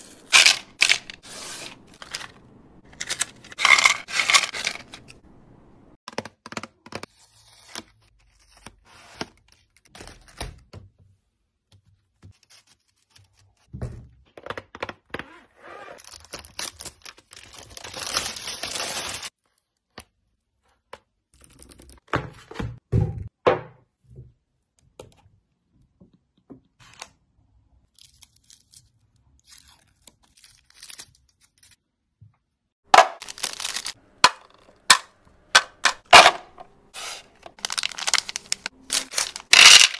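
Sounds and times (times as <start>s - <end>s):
wrapper tearing and rustling: 0.2s - 5.2s, 16.0s - 19.4s, 28.0s - 31.8s, 33.1s - 34.0s, 36.9s - 39.9s
plastic packaging ripping: 16.0s - 19.3s, 33.1s - 34.0s, 37.0s - 39.9s.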